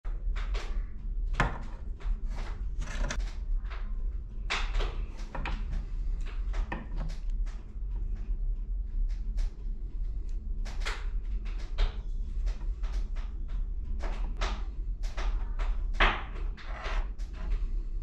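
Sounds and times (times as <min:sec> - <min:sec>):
steady low hum: 0:00.0 - 0:18.0
cable and metal strip handling: 0:02.4 - 0:03.3.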